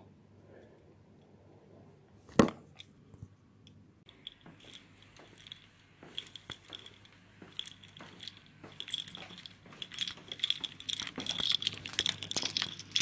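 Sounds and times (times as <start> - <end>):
clicks and rustles of walking: 4.1 - 13.0
light jingling: 4.1 - 13.0.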